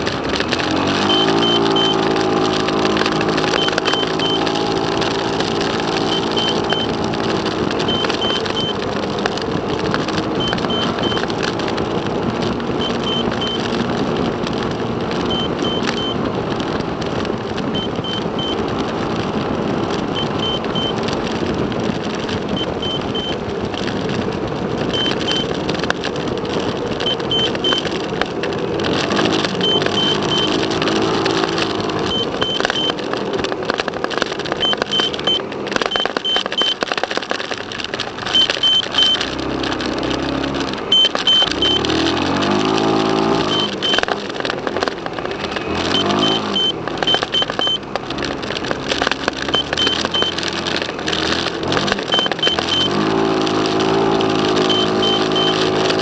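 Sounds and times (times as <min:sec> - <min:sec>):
car engine running: 0:00.0 - 0:56.0
road and wind noise: 0:00.0 - 0:56.0
high triple beep: 0:00.8 - 0:02.2, 0:03.4 - 0:04.5, 0:06.0 - 0:07.0, 0:07.9 - 0:08.8, 0:10.4 - 0:11.2, 0:12.8 - 0:13.6, 0:15.3 - 0:16.2, 0:20.2 - 0:21.0, 0:22.6 - 0:23.4, 0:24.9 - 0:25.5, 0:27.0 - 0:27.9, 0:29.6 - 0:30.6, 0:34.6 - 0:36.8, 0:38.3 - 0:39.2, 0:40.9 - 0:41.9, 0:43.4 - 0:44.0, 0:45.7 - 0:47.8, 0:49.4 - 0:50.5, 0:52.0 - 0:53.0, 0:54.6 - 0:55.6.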